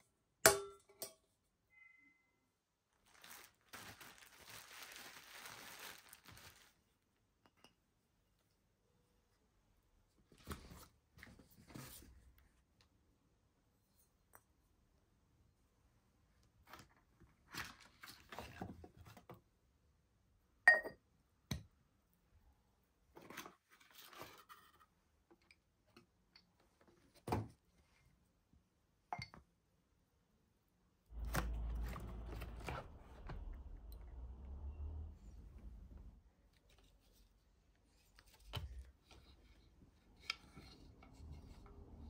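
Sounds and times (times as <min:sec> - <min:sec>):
cardboard packaging rustling: 0:03.0 - 0:06.9, 0:31.1 - 0:33.8.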